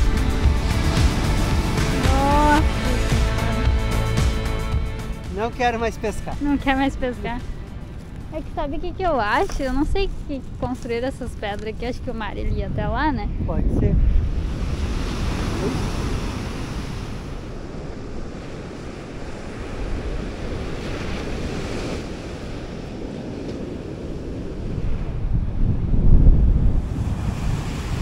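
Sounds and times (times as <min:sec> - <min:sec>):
wind buffeting microphone: 0:06.2 - 0:28.0
heavy surf breaking: 0:13.7 - 0:28.0.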